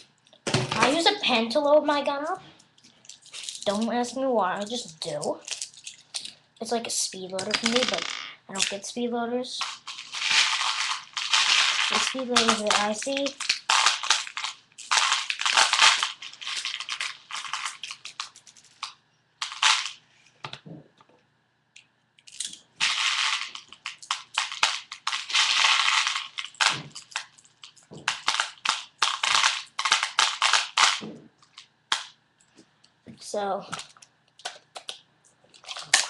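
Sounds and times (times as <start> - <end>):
plastic pellets clattering: 7.4 - 8.8, 9.5 - 20.0, 22.3 - 32.1, 35.6 - 36.0.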